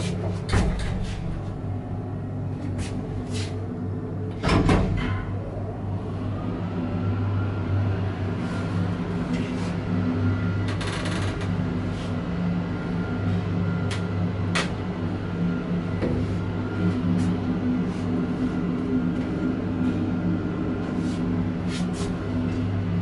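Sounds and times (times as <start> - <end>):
elevator drive humming: 0.0 - 23.0
elevator clicks and rattles: 0.2 - 1.5.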